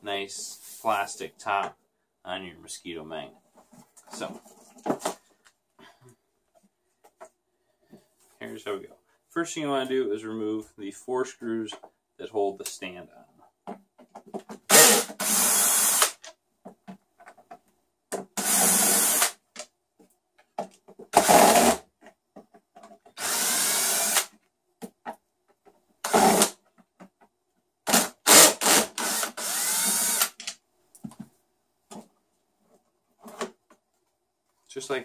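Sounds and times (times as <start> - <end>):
cordless drill running: 14.7 - 16.2, 18.4 - 19.4, 23.2 - 24.3, 26.1 - 26.5, 27.9 - 30.4
small clicks and handling knocks: 22.0 - 23.2.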